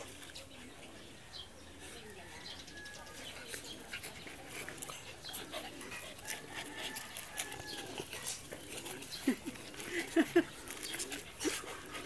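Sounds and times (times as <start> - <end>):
dogs vocalizing: 3.2 - 12.0.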